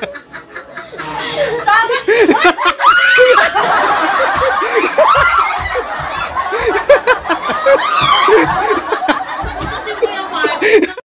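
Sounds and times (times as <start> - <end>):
people laughing: 0.0 - 11.0
broom knocking on wooden floor: 4.2 - 10.0.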